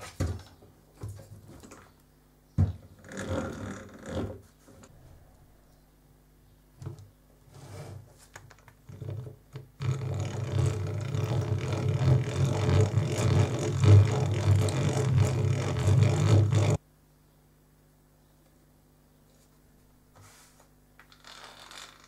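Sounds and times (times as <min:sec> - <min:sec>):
hand drill boring into wood: 0:09.8 - 0:16.8.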